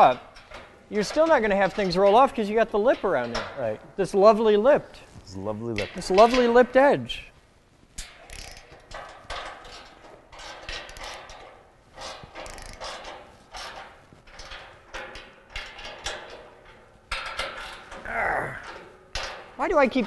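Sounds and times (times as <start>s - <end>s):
socket ratchet clicking: 8.0s - 9.2s, 12.4s - 13.0s.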